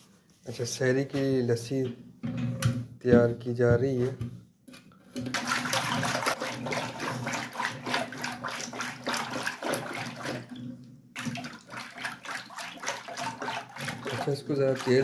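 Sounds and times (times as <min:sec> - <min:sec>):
thick liquid sloshing in churning: 0:05.1 - 0:15.0.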